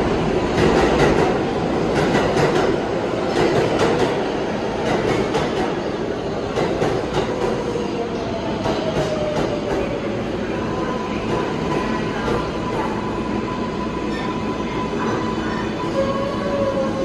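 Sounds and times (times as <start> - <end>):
subway train rumbling in tunnel: 0.0 - 17.0
high squeal of wheels: 14.0 - 17.0.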